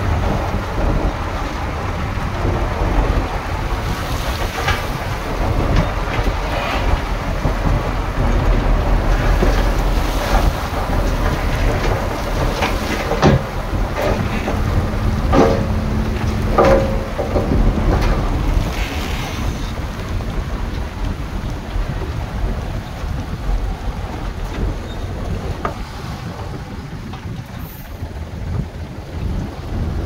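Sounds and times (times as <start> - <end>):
diesel machinery rumbling: 0.0 - 30.0
sharp metallic knocks: 9.3 - 18.8.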